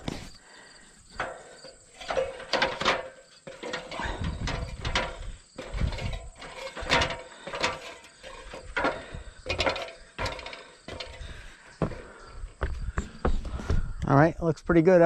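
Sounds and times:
knocks on metal ladder rungs: 1.1 - 12.0.

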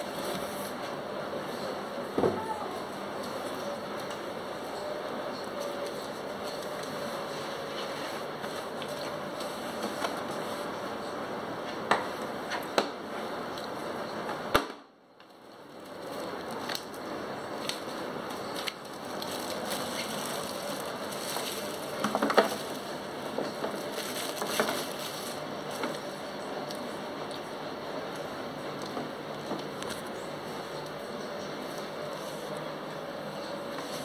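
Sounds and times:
plastic bag crinkling: 15.5 - 26.2.

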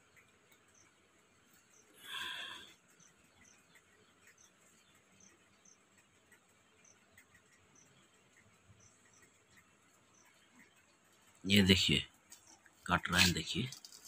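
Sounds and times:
insect chirping: 0.0 - 6.0.

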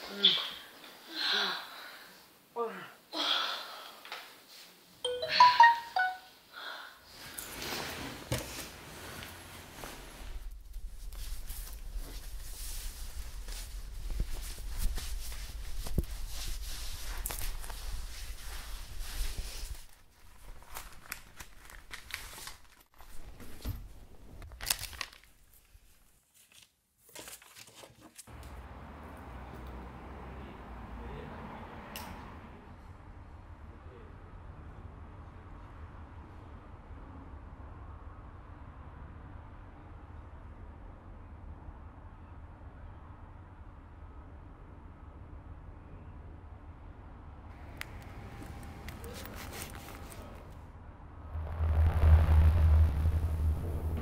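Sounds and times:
phone notification chime: 5.1 - 6.3
soft rustle: 7.1 - 24.8, 47.6 - 50.6
low hum: 47.6 - 54.0.

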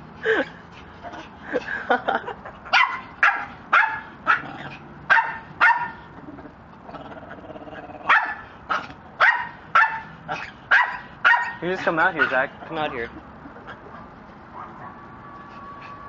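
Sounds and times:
dog barking: 2.7 - 4.5, 5.1 - 6.0, 8.1 - 11.6, 12.2 - 12.4, 14.5 - 15.1.

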